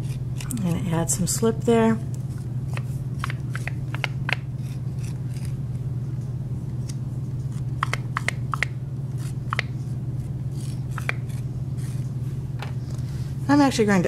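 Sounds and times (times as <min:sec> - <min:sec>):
steady low hum: 0:00.0 - 0:14.0
tool scratching clay bowl rim: 0:02.8 - 0:05.6, 0:10.5 - 0:12.1.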